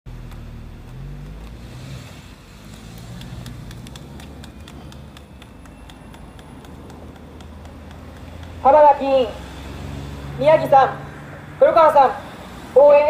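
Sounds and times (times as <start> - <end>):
vehicle engine humming: 0.1 - 13.0
rapid sharp clicks: 2.6 - 8.6.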